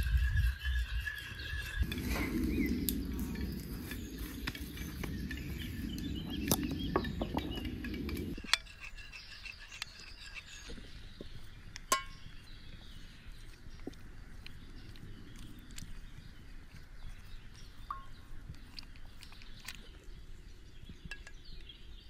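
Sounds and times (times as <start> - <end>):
faint birdsong: 0.0 - 22.0
low steady rumble: 1.8 - 8.4.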